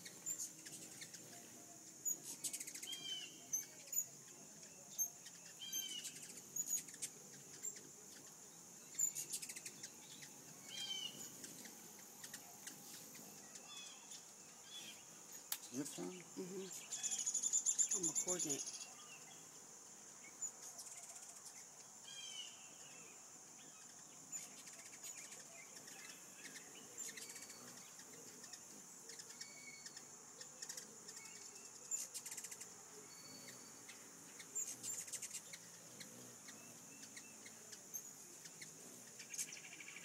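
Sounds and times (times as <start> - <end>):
high-pitched insect drone: 0.0 - 19.0
hummingbird chirps: 0.0 - 40.0.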